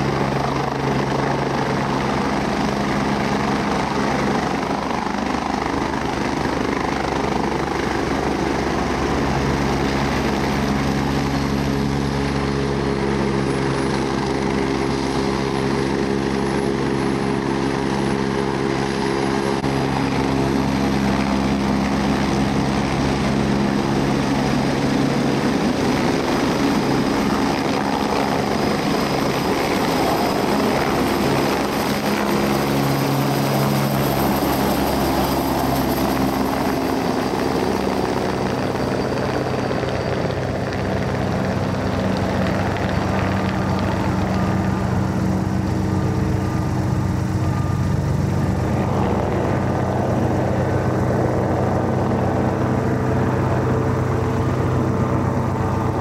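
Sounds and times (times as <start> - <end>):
helicopter rotor rumble: 0.0 - 56.0
high turbine whine: 0.0 - 56.0.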